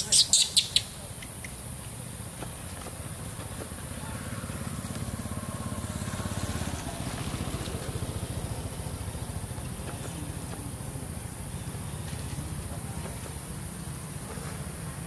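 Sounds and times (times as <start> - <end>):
small engine running: 3.8 - 13.4.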